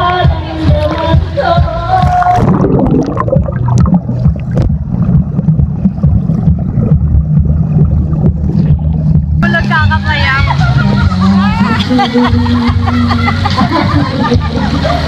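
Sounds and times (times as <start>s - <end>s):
muffled underwater churning: 1.8s - 15.0s.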